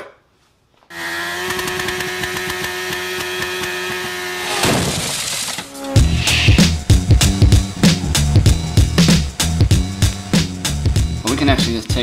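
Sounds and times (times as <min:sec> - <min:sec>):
crashing whoosh: 0:04.5 - 0:10.4
buzzing drone with rattle: 0:05.2 - 0:11.6
music with heavy beat: 0:06.0 - 0:12.0.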